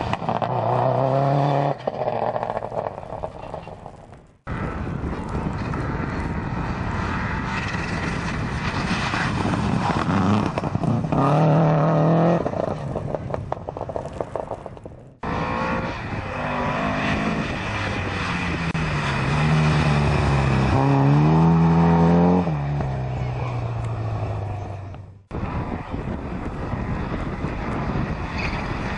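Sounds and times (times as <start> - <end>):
exhaust crackles: 1.7 - 28.9
rally car engine revving past: 15.2 - 24.9.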